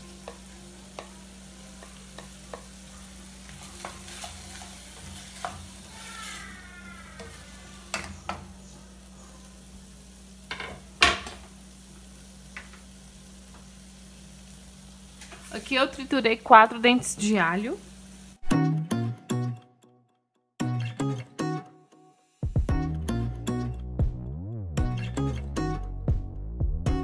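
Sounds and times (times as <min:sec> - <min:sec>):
meat and onion sizzling in oil: 0:00.0 - 0:18.5.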